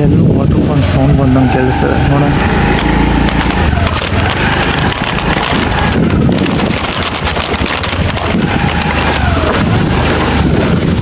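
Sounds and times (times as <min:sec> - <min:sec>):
wind rumble on microphone: 0:00.0 - 0:11.0
waterfall rushing: 0:07.8 - 0:11.0.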